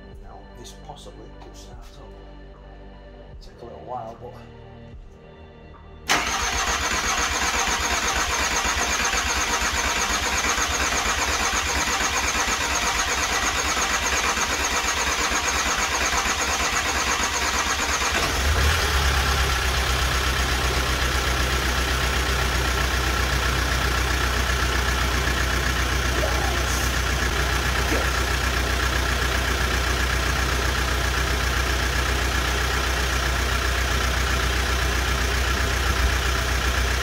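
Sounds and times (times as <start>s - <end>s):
diesel engine starting and idling: 6.0s - 37.0s.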